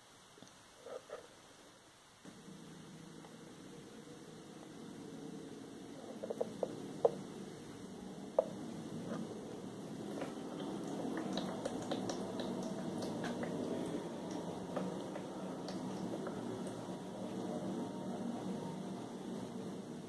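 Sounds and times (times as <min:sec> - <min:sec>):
mist maker and fan hum: 0:00.0 - 0:20.0
water ticks and drips: 0:10.0 - 0:17.0.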